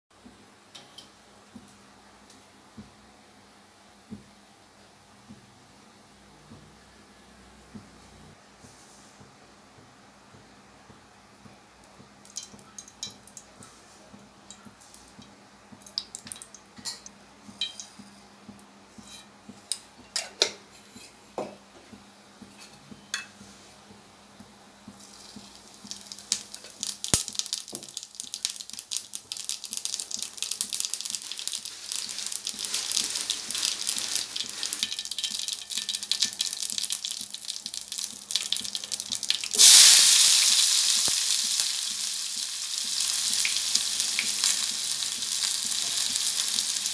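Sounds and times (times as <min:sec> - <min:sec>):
oil ticking and clicking in pan: 0:12.2 - 0:13.7, 0:14.4 - 0:18.7, 0:24.9 - 0:46.9
seeds sizzling in hot oil: 0:12.2 - 0:13.7, 0:14.5 - 0:18.2, 0:24.9 - 0:46.9
onions sizzling in hot oil: 0:25.0 - 0:46.9.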